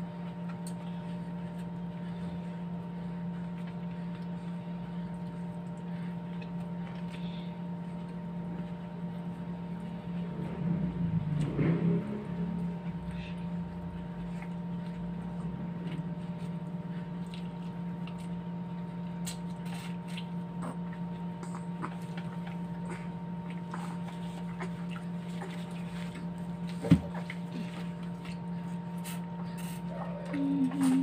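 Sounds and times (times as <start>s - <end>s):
steady low hum: 0.0s - 31.0s
chewing: 13.2s - 31.0s
lip smacks: 19.1s - 25.8s.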